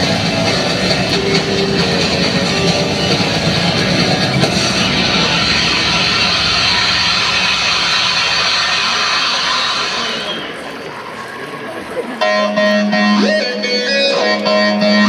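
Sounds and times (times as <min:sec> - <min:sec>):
rock music echoing over pa: 0:00.0 - 0:10.1, 0:12.2 - 0:15.0.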